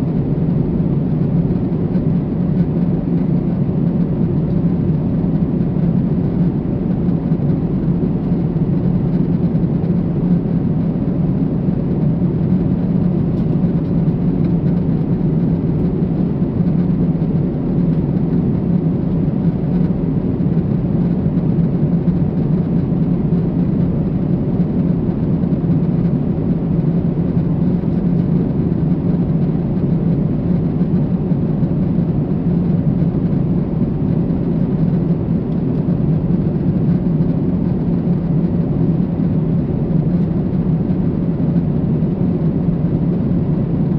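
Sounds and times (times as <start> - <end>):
airplane engines humming: 0.0 - 43.9.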